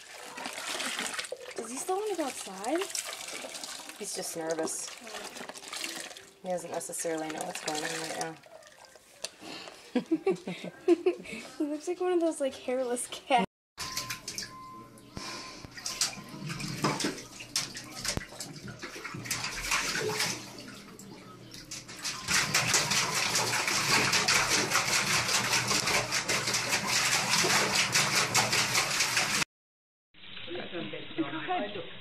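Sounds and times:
dog splashing in bathwater: 0.0s - 9.2s, 15.7s - 29.4s
claws scraping bathtub: 0.0s - 9.4s, 21.8s - 29.4s.

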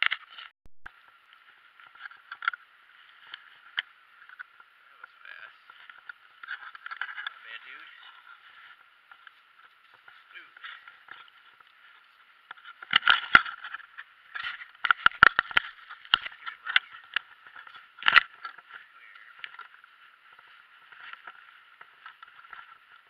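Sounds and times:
footsteps on gravel and leaves: 5.0s - 23.0s.

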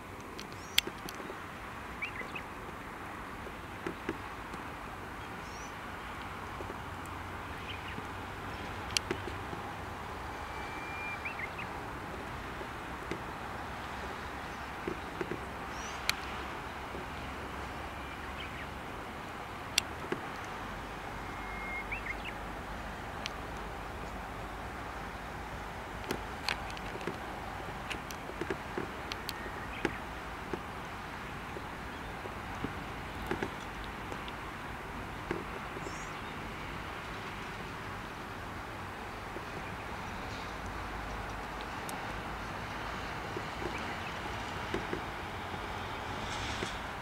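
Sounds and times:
steady background hiss: 0.0s - 47.0s
distant bird chirps: 0.4s - 4.5s, 5.2s - 11.9s, 13.1s - 18.8s, 19.8s - 24.5s, 26.0s - 34.3s, 35.3s - 36.4s.

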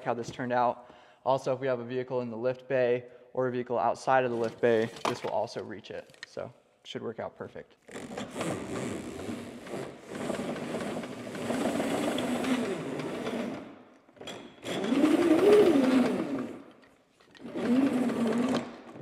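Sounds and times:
vacuum hose rewinding onto reel: 7.9s - 13.7s, 14.6s - 16.7s, 17.4s - 19.0s.

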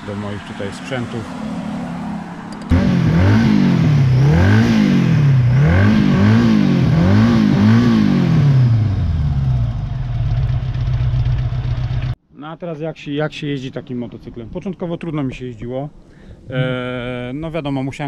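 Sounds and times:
motorcycle engine revving: 0.0s - 12.2s
motorcycle engine idling: 9.0s - 12.2s.

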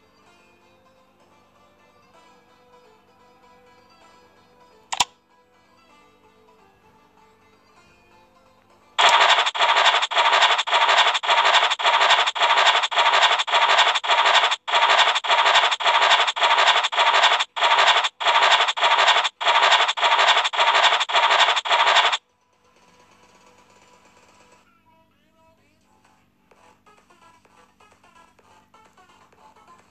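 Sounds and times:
rasping scratch-card scrapes: 9.0s - 22.2s.

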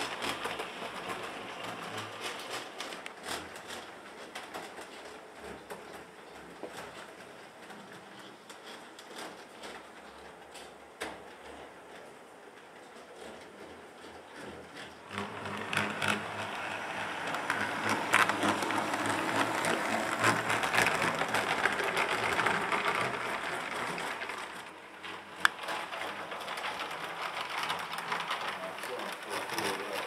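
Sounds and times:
model train motor whirring: 0.0s - 6.0s, 13.2s - 30.0s
wheels rattling clicks: 0.0s - 30.0s.

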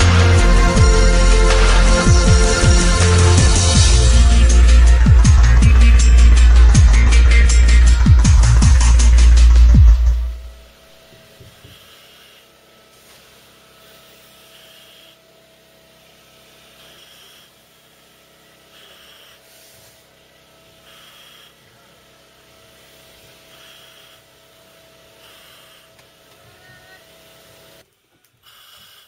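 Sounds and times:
breathing apparatus mask hiss: 11.1s - 29.0s.

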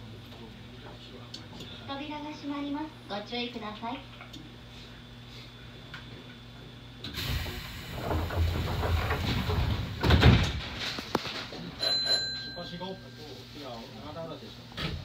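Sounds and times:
train doors sliding with air rush: 7.1s - 11.2s
heavy door thud: 7.2s - 10.9s.

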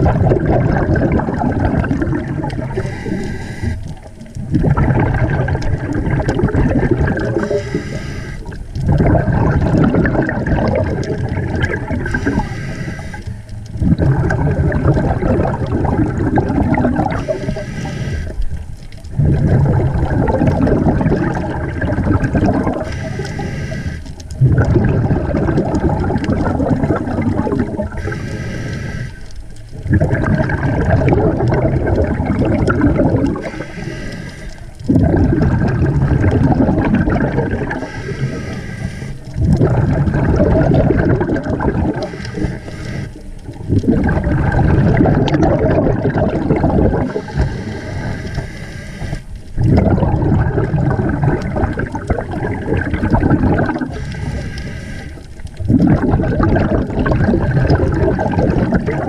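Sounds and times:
exhaled bubbles rumbling: 0.0s - 59.0s
regulator inhale hiss: 2.7s - 4.1s, 7.4s - 8.6s, 12.1s - 13.6s, 17.1s - 18.6s, 22.8s - 24.2s, 27.9s - 29.4s, 33.4s - 34.8s, 37.8s - 39.4s, 42.0s - 43.4s, 47.1s - 49.6s, 53.9s - 55.4s.

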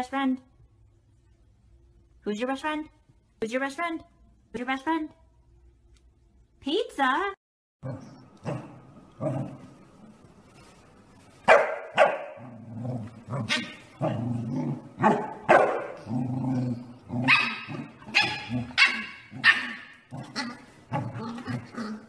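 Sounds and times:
dog barking: 11.5s - 12.4s, 15.0s - 16.0s, 17.3s - 19.9s.

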